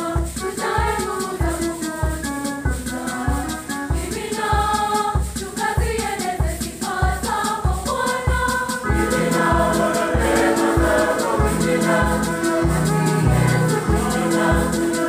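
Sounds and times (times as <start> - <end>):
choir singing a hymn: 0.0 - 15.0
steady low beat: 0.0 - 15.0
organ: 8.8 - 15.0
bass line: 8.9 - 14.9.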